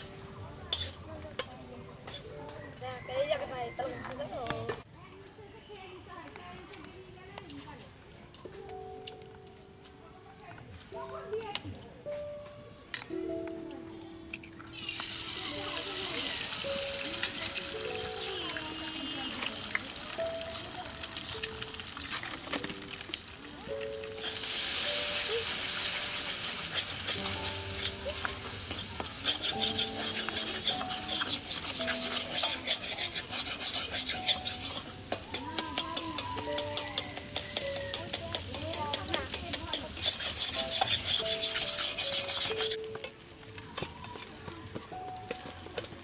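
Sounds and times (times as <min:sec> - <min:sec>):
eggs sizzling in a wok: 0:00.0 - 0:02.3, 0:14.5 - 0:44.4
metal spatula scraping a pan: 0:00.7 - 0:02.4, 0:24.2 - 0:43.2.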